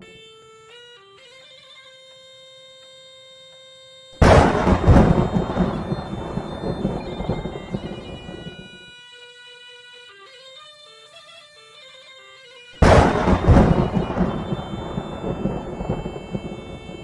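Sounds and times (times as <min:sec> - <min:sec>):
thunderclap rumbling: 0:04.2 - 0:08.7, 0:12.8 - 0:17.0.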